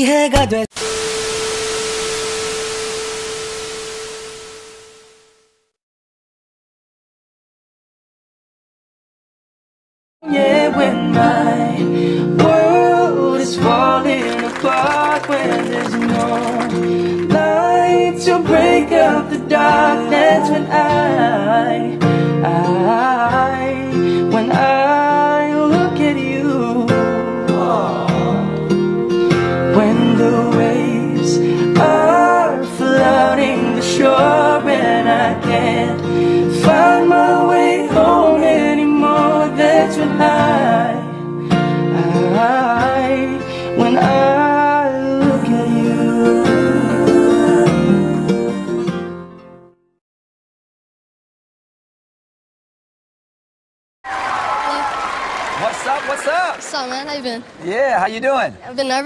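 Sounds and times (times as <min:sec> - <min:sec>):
man singing a ballad: 0:00.0 - 0:00.8, 0:10.2 - 0:28.6, 0:29.6 - 0:41.2, 0:41.9 - 0:48.8
acoustic guitar: 0:10.2 - 0:49.8.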